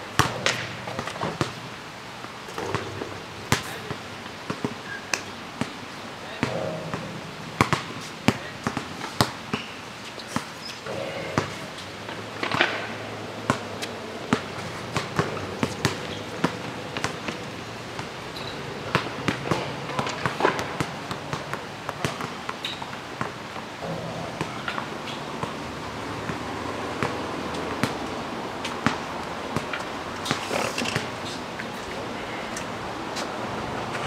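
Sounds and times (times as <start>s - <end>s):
basketball bouncing on asphalt: 0.2s - 1.6s, 2.6s - 5.7s, 6.4s - 9.7s, 12.4s - 17.4s, 18.0s - 28.1s, 28.7s - 31.1s.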